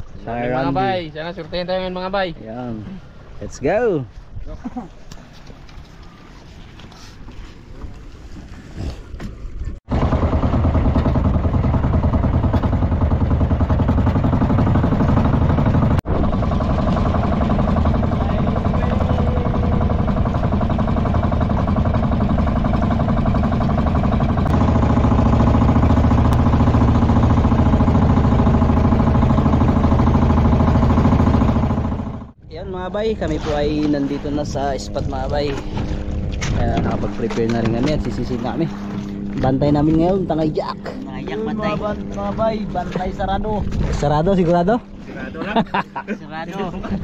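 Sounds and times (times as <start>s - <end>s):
boat engine running: 0.0s - 47.0s.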